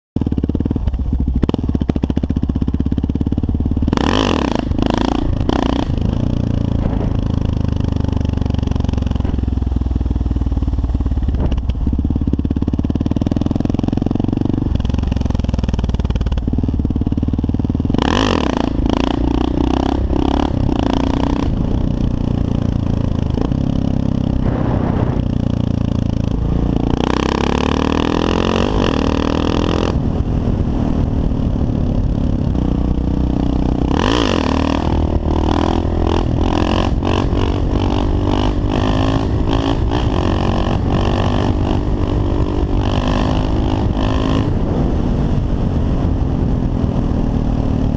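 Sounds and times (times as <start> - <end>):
motorcycle engine running: 0.2 - 47.9
rush of noise: 3.4 - 47.9.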